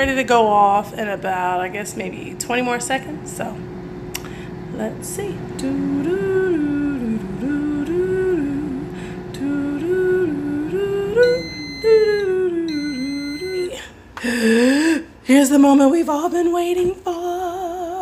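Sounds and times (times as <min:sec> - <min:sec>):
woman humming: 0:04.1 - 0:15.1
air fryer beeps: 0:09.7 - 0:13.9.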